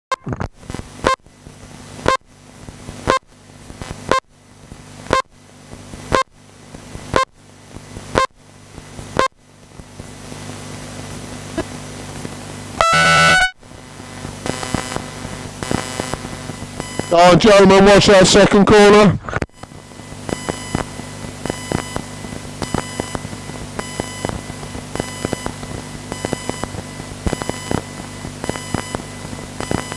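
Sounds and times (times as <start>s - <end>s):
long electronic start tone: 12.8s - 13.6s
short electronic beeps: 12.8s - 13.6s, 29.6s - 29.9s.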